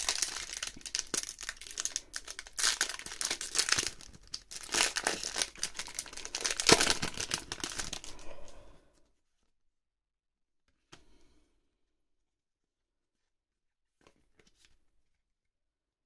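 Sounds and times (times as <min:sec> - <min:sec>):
foil wrapper tearing and crinkling: 0:00.0 - 0:08.2.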